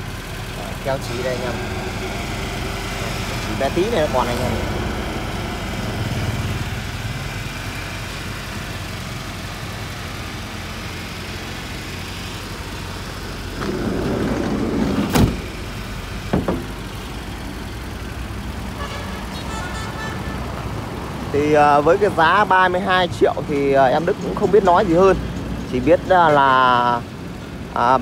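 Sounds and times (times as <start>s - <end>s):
van engine idling: 0.0s - 28.0s
sliding door rolling on track: 13.4s - 16.9s
door slamming shut: 13.6s - 15.5s.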